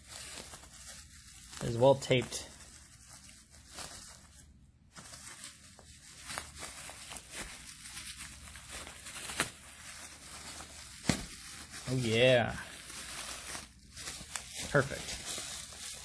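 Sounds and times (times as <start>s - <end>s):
bubble wrap crinkling: 0.0s - 16.0s
packing tape tearing: 5.0s - 16.0s.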